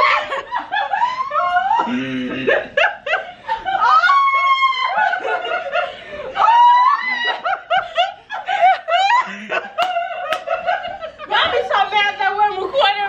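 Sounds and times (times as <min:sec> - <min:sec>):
people laughing hard: 0:00.0 - 0:12.1
high-pitched squeal of laughter: 0:03.7 - 0:05.3, 0:06.4 - 0:07.8.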